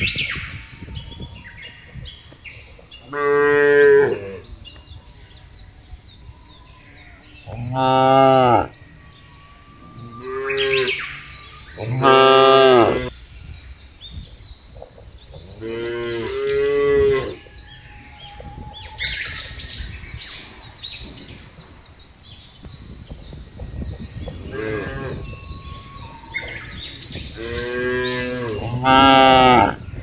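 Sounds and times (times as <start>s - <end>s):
cattle mooing: 9.8s - 11.2s, 11.8s - 13.1s.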